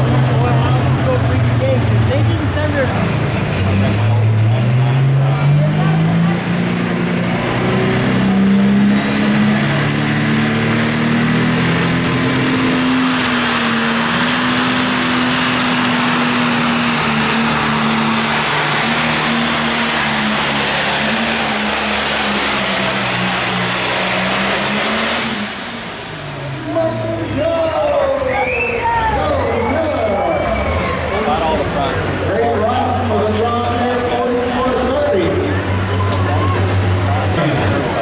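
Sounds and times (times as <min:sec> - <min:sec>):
tractor diesel engine at full power: 0:00.0 - 0:38.0
high whistle rising in pitch: 0:28.1 - 0:31.4.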